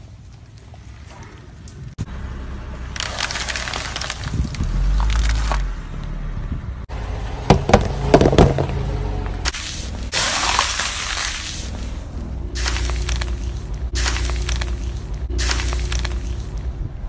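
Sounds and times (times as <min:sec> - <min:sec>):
tyre crunching brittle objects: 0:02.9 - 0:05.7, 0:09.5 - 0:16.7
sharp cracks and snaps: 0:03.0 - 0:05.7, 0:12.6 - 0:16.7.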